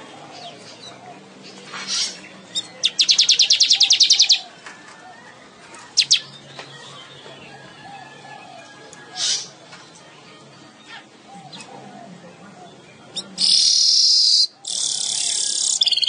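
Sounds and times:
weaver bird singing: 0:00.3 - 0:04.5, 0:05.9 - 0:08.0, 0:12.7 - 0:16.0.

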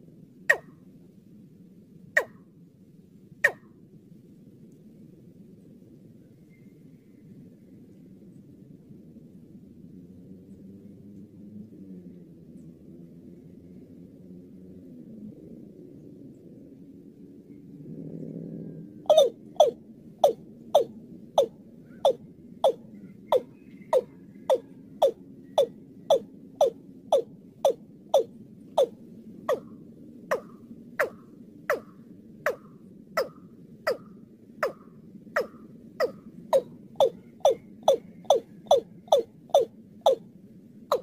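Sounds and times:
bird calling in knocking notes: 0:00.5 - 0:00.8, 0:02.2 - 0:02.4, 0:03.4 - 0:03.6, 0:19.1 - 0:28.9, 0:30.3 - 0:40.2.

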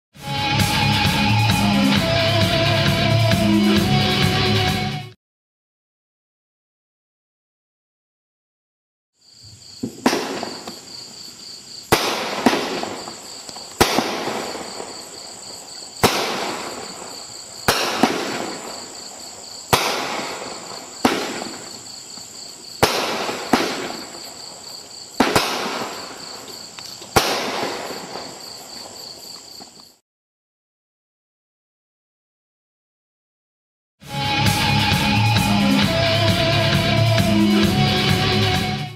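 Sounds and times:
crickets chirring: 0:09.2 - 0:30.0
firework bangs with hiss and crackle: 0:09.4 - 0:29.1.

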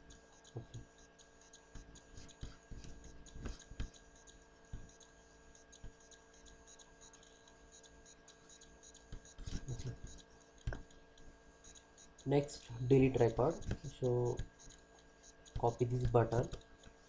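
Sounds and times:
faint electrical hum: 0:00.0 - 0:17.0
computer mouse clicks: 0:00.1 - 0:11.0.

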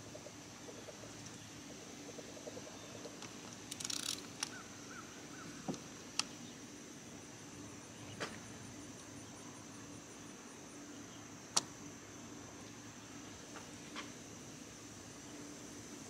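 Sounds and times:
high insect buzz: 0:02.7 - 0:16.0.

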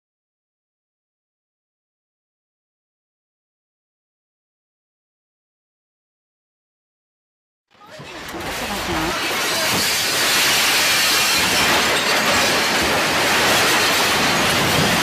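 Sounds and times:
room rattling and rumbling: 0:07.8 - 0:15.0.

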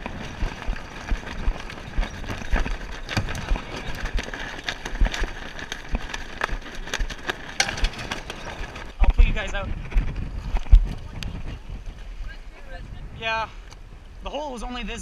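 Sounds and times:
hull and rigging knocking: 0:00.0 - 0:09.2
wind: 0:00.0 - 0:15.0.

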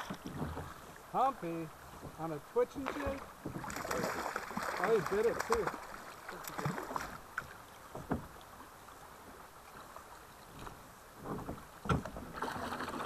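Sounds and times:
soft knocks on boat: 0:00.0 - 0:01.0, 0:01.9 - 0:03.7, 0:06.6 - 0:08.4, 0:10.5 - 0:12.3
river water rushing: 0:00.0 - 0:11.2.

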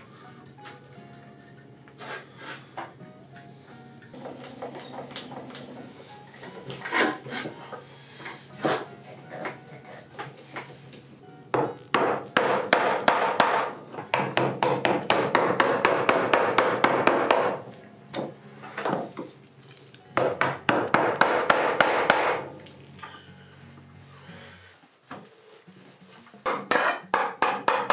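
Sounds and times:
chisel cutting strokes: 0:02.0 - 0:02.7, 0:06.8 - 0:07.8.

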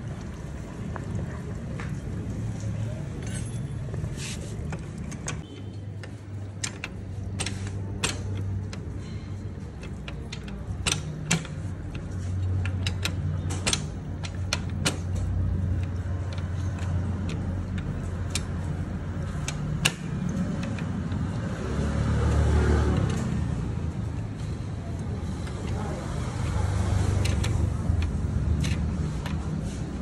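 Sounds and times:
metal clicks of hand tools: 0:26.4 - 0:29.7.

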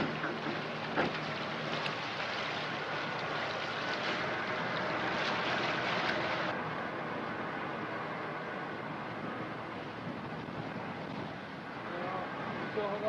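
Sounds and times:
low engine hum: 0:00.0 - 0:13.0
water splashing along a hull: 0:00.0 - 0:13.0
wind on microphone: 0:08.6 - 0:13.0.

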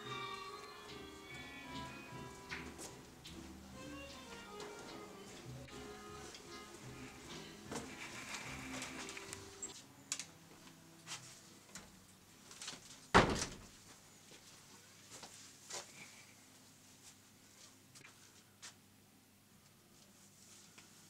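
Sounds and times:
music: 0:00.0 - 0:11.3
door shutting: 0:13.2 - 0:13.7.

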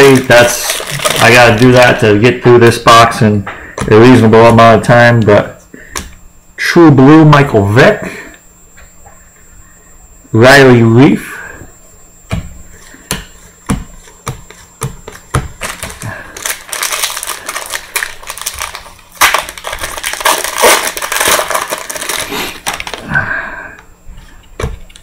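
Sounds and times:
wrapper crinkling: 0:00.0 - 0:02.0, 0:15.6 - 0:23.1.

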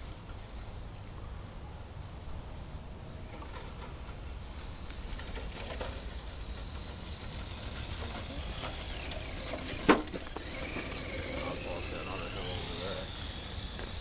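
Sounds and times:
electric motor and gears whining: 0:03.2 - 0:14.0.

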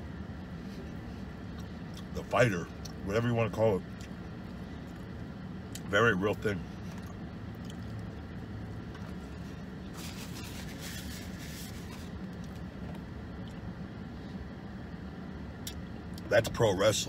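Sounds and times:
car cabin hum: 0:00.0 - 0:17.0
person chewing food: 0:06.9 - 0:08.2.

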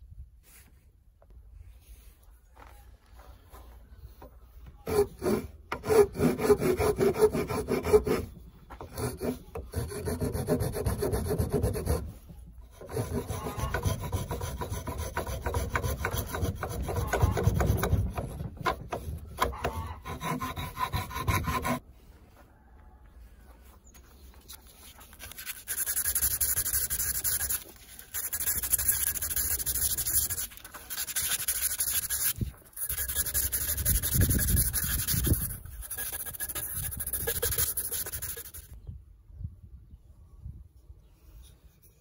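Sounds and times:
hand file rasping wood: 0:04.8 - 0:21.8, 0:25.2 - 0:38.7.

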